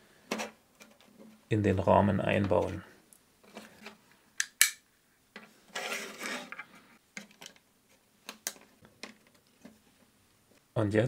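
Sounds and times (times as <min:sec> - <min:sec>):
plastic part scraping slide: 0:05.7 - 0:06.8.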